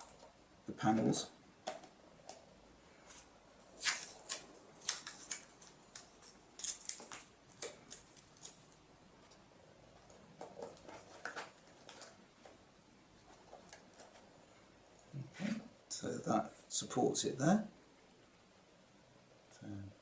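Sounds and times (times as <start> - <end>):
masking tape ripping: 3.8 - 8.6.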